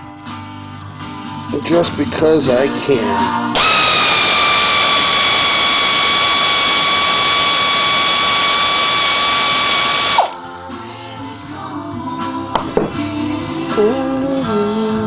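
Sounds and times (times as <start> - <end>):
air ratchet high whine: 3.6 - 10.4.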